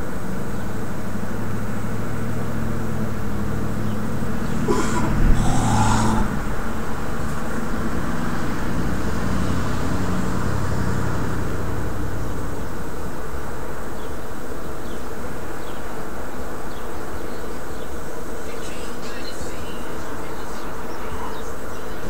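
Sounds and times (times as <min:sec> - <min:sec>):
steady rushing background noise: 0:00.0 - 0:22.0
car driving past: 0:01.8 - 0:13.0.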